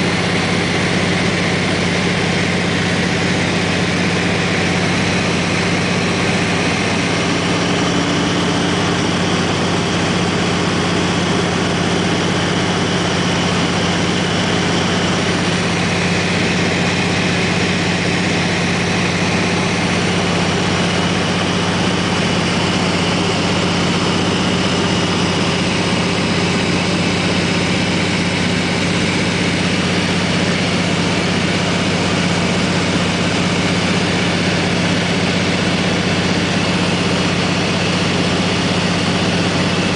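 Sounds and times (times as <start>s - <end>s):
plane engine and propeller droning: 0.0s - 39.9s.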